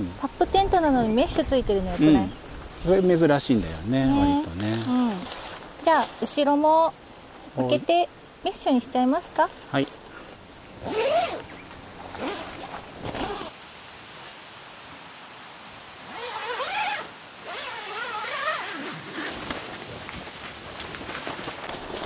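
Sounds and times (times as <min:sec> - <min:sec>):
tent zip rasping open: 0:04.0 - 0:06.3, 0:10.7 - 0:13.5, 0:16.0 - 0:20.1, 0:21.0 - 0:22.0.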